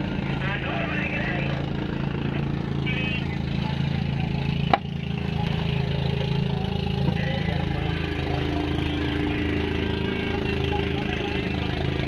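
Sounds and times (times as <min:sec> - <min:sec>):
higher engine note: 0:00.0 - 0:12.0
small boat engine running: 0:00.0 - 0:12.0.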